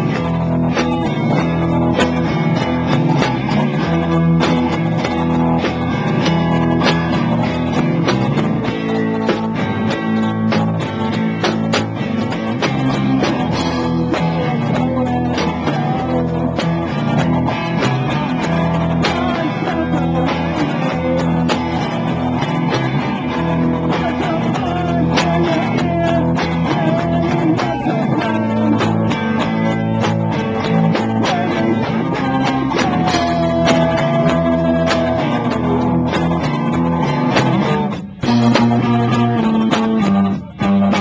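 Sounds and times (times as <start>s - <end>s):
drum beats: 0.0s - 41.0s
guitar chords: 0.0s - 41.0s
live band playing: 0.0s - 41.0s.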